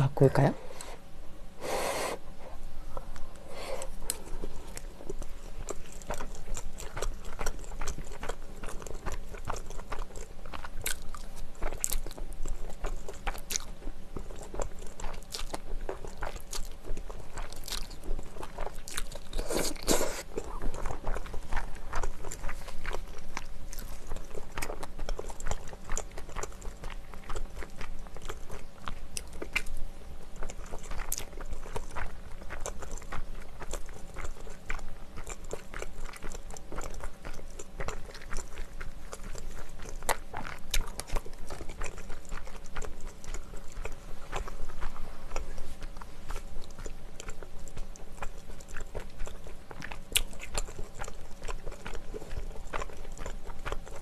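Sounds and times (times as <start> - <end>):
person chewing food: 1.6 - 54.0.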